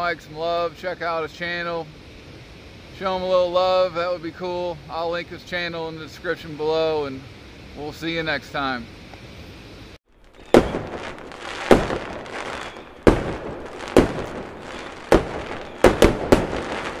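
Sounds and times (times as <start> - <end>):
fireworks banging with rumbling echo: 10.2 - 17.0.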